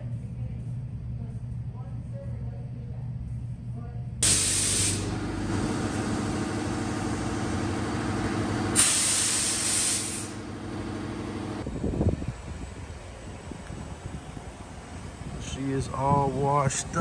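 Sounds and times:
pressure washer spray hissing: 4.2s - 10.6s
pump humming: 4.2s - 11.6s.

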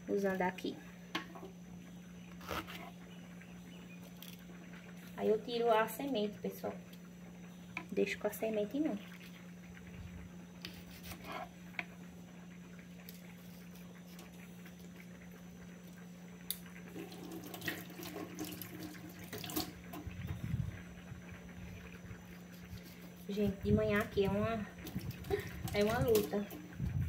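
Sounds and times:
steady low hum: 0.0s - 27.0s
faint running water from sink: 16.8s - 27.0s.

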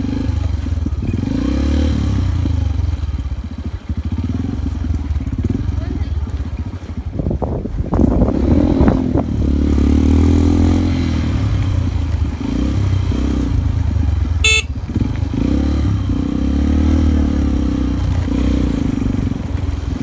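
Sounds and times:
motorcycle engine revving: 0.0s - 7.0s, 8.0s - 20.0s
short sharp high-pitched sound: 14.4s - 14.7s.

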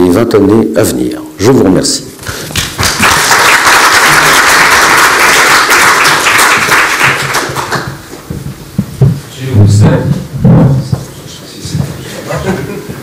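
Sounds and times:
audience applauding: 2.3s - 8.1s.

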